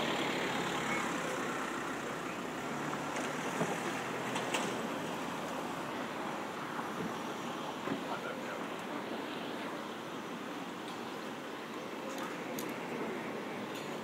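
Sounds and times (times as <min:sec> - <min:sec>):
vehicle engine hum: 0:00.0 - 0:08.8
traffic rushing noise: 0:00.0 - 0:14.0.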